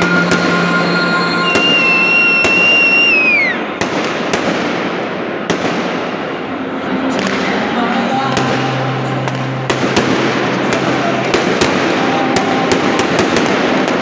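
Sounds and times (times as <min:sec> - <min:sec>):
high firework whistle: 0:00.0 - 0:04.7, 0:08.3 - 0:14.0
burning pyrotechnics: 0:00.0 - 0:07.7, 0:08.3 - 0:14.0
firecracker bangs: 0:00.0 - 0:07.7, 0:08.3 - 0:14.0
packed crowd noise: 0:00.0 - 0:14.0.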